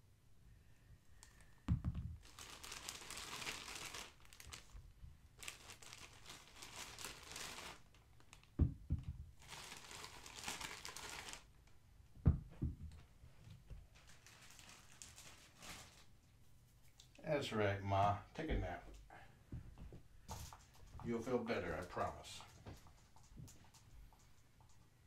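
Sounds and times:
dull thumps: 1.7s - 2.2s, 8.6s - 9.4s, 12.2s - 13.0s
crinkly packaging rustling: 2.2s - 8.6s, 9.4s - 11.6s, 13.5s - 16.3s.

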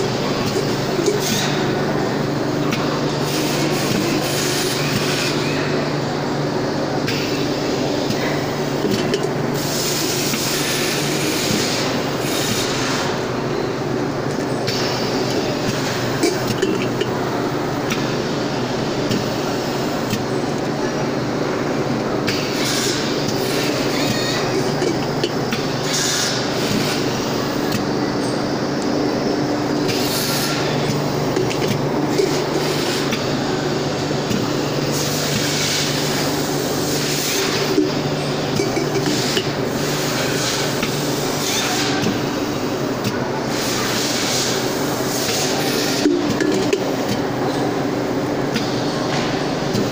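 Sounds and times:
machine hissing: 9.5s - 13.4s, 22.3s - 28.0s, 29.1s - 47.6s.

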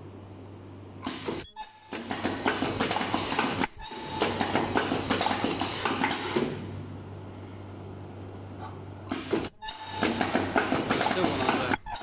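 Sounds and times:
machine low hum: 0.0s - 12.0s
machine clicking and clattering: 1.9s - 6.6s, 9.1s - 12.0s.

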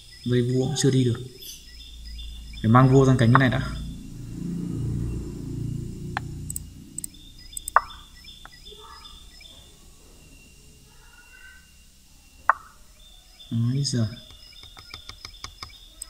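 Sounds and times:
low rumble: 1.3s - 9.8s
short sharp clicks: 6.5s - 7.9s.

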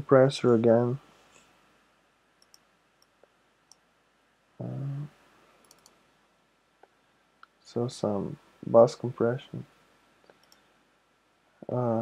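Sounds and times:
faint computer mouse clicks: 2.4s - 3.8s, 5.6s - 6.0s, 10.2s - 10.7s.

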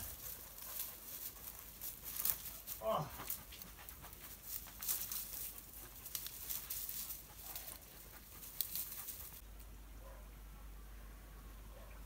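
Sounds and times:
footsteps crunching on stony path: 0.0s - 9.4s
brush rustling: 0.0s - 9.7s.

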